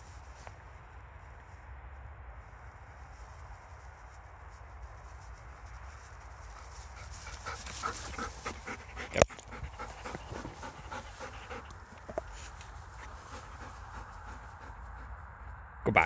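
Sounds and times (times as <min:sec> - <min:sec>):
dog panting: 0:06.5 - 0:15.5.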